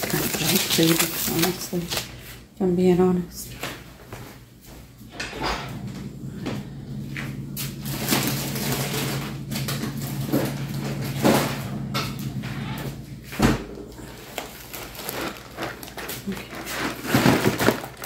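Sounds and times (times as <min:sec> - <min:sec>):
steady low hum: 0:00.0 - 0:18.0
rustling and knocking: 0:13.4 - 0:18.0.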